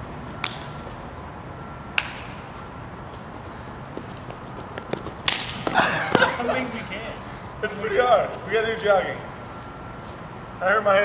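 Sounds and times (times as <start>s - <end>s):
running footsteps on concrete: 3.3s - 8.5s.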